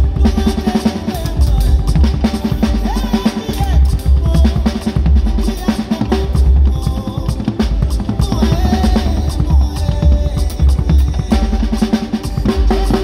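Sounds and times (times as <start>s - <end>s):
cymbals: 0.0s - 13.0s
drum kit playing: 0.0s - 13.0s.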